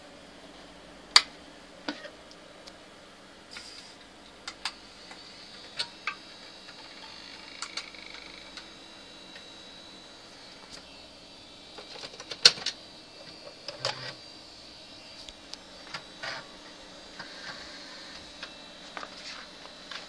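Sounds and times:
floppy drive clicking: 4.3 - 11.0, 11.6 - 14.3.

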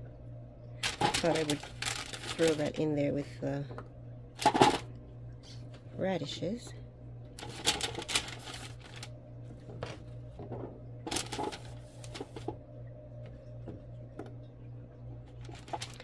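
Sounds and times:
low hum: 0.0 - 16.0
vegetables rustling in a pan: 0.8 - 2.8, 7.4 - 9.1.

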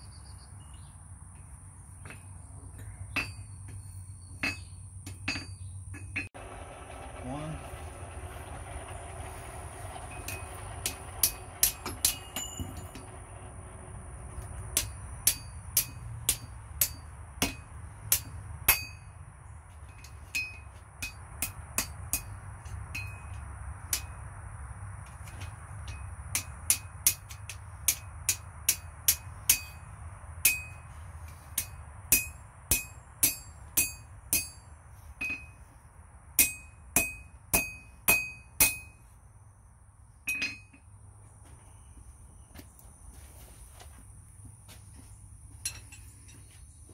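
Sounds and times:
hammer ringing on anvil: 10.2 - 13.2, 14.8 - 19.1, 30.4 - 30.8, 31.6 - 35.6, 36.4 - 39.0.

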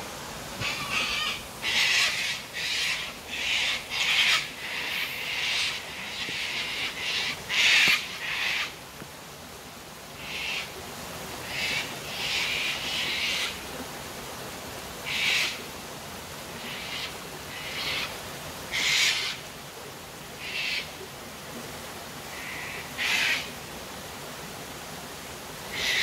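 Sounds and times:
waterfall and stream rushing: 0.0 - 26.0
cockatoos screeching: 0.6 - 8.7.

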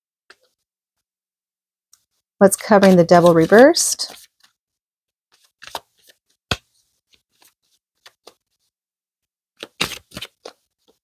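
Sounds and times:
cards being shuffled: 2.6 - 4.6, 5.3 - 8.7, 9.6 - 11.0.

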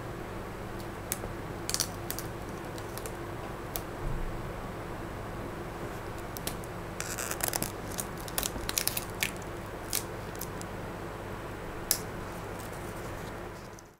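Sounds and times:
crinkling clicks and crackles: 6.1 - 10.7.

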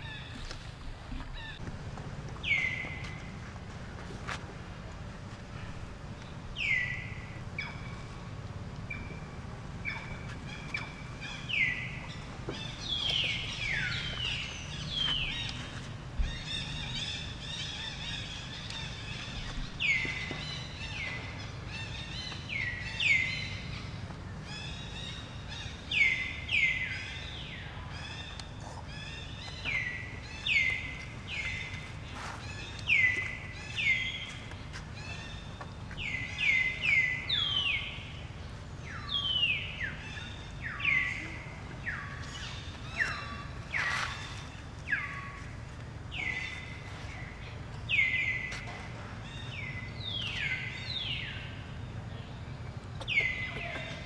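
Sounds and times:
low outdoor rumble: 0.0 - 54.0.

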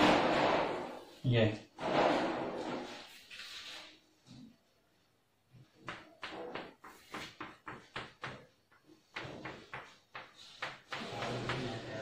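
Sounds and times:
chalk tapping on a chalkboard: 5.8 - 11.8.

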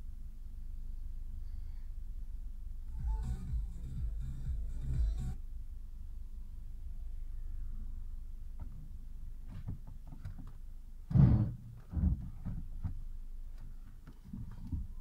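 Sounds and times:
car engine idling: 0.0 - 9.5
dull thumps: 8.6 - 13.1.

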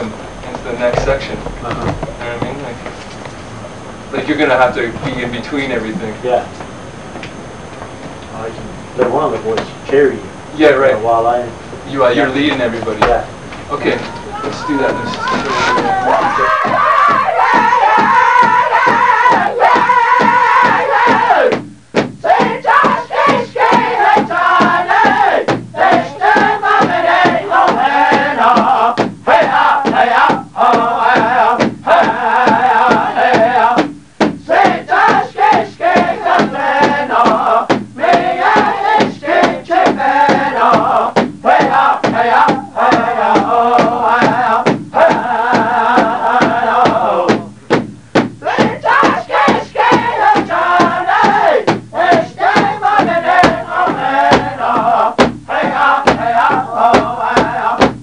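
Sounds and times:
steady drum beat: 0.0 - 3.0, 12.0 - 58.0
voices chanting in unison: 11.4 - 21.6, 22.2 - 47.8, 48.4 - 58.0.

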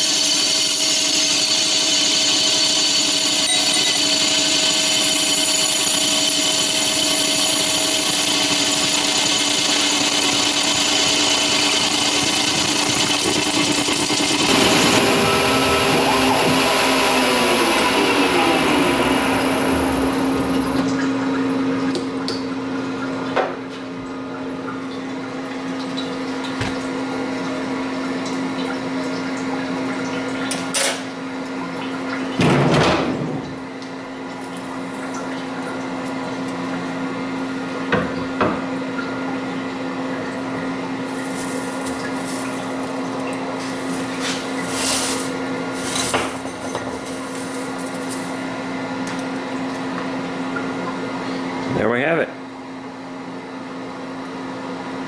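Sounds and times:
machine hum: 0.0 - 22.8, 38.5 - 51.8
coolant spraying: 41.0 - 48.5.

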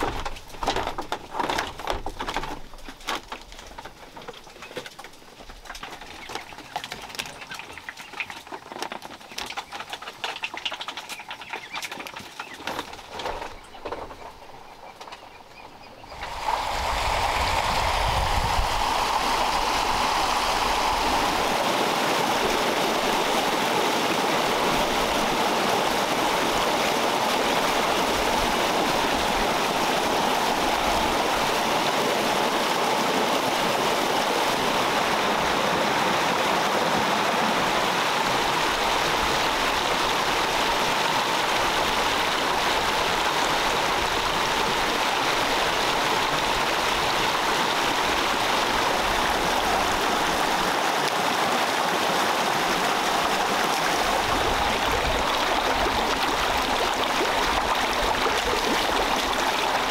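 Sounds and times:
stream rushing over stones: 0.0 - 15.1, 15.7 - 59.9.

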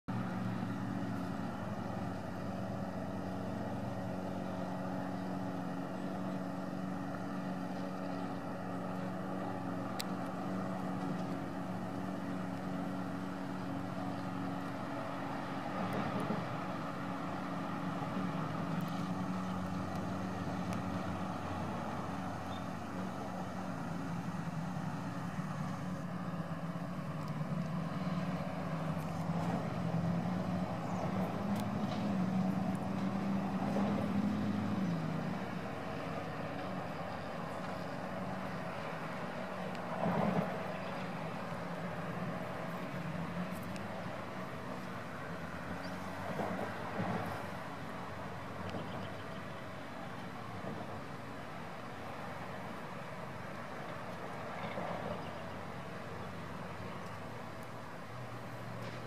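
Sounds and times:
faint clicks: 27.2 - 27.8.

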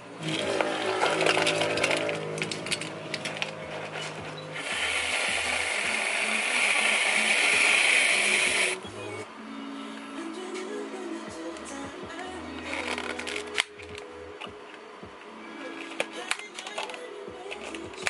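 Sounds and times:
background music: 0.0 - 18.0
sharp clicks and rattles: 0.2 - 4.4
loud steady steam hiss: 4.6 - 8.8.

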